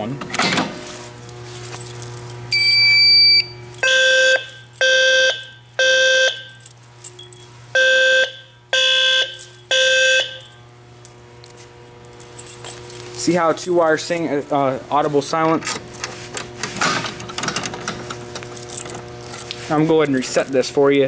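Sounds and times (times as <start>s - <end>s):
fire alarm horns blasting: 2.5s - 6.6s, 7.7s - 10.7s
low-frequency alarm sounder: 2.5s - 6.6s, 7.7s - 10.6s.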